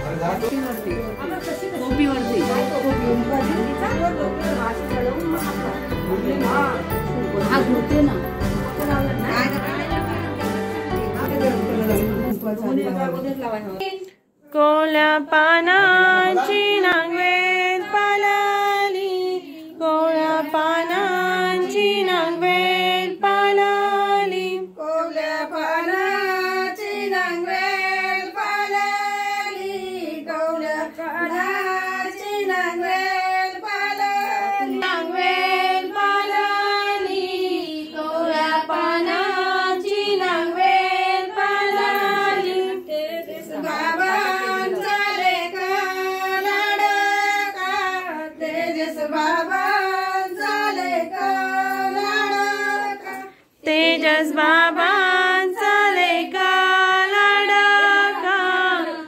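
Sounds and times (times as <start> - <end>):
woman singing: 13.8 - 59.0.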